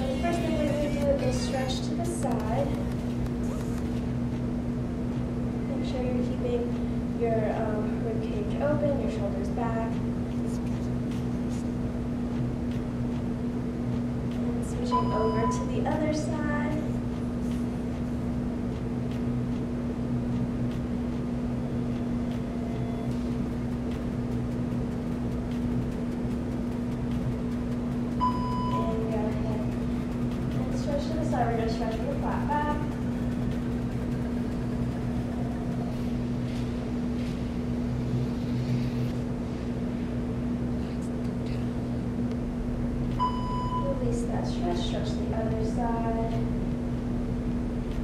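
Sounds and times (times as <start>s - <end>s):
machine-like room hum: 0.0s - 48.0s.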